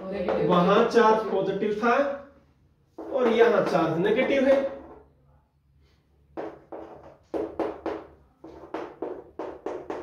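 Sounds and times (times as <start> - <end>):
chalk tapping on blackboard: 2.9 - 5.0, 6.3 - 10.0.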